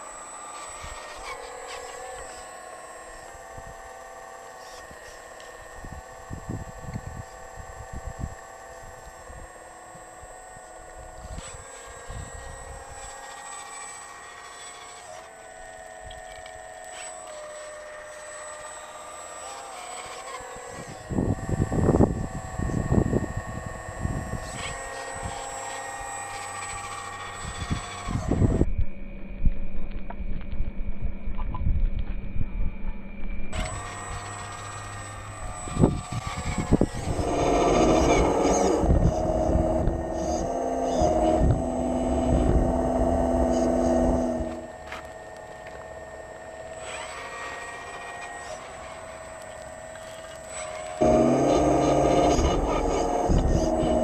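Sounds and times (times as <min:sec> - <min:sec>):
hydraulic pump whine: 0:00.0 - 0:31.4, 0:32.0 - 0:54.0
wind rumble on microphone: 0:05.6 - 0:10.0, 0:20.7 - 0:25.4, 0:26.7 - 0:44.8, 0:51.0 - 0:54.0.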